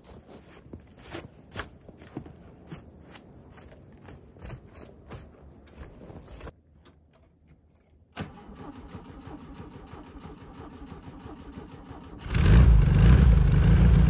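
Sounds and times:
car engine cold starting: 8.2s - 14.0s.

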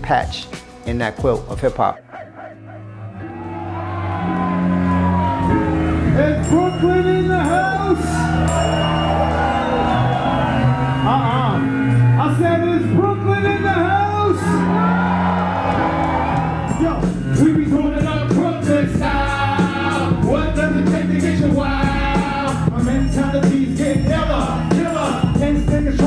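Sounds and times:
steady bass line: 0.0s - 26.0s
drum beat: 16.7s - 26.0s
person singing: 17.5s - 26.0s.

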